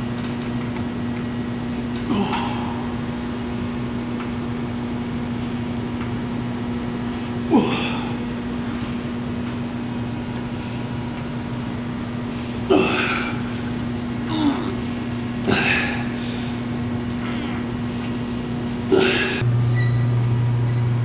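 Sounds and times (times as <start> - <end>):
low steady hum: 0.0 - 21.0
man grunting with exertion: 2.0 - 2.9, 7.5 - 8.3, 12.6 - 13.5, 14.2 - 14.8, 15.4 - 16.2, 18.9 - 19.4.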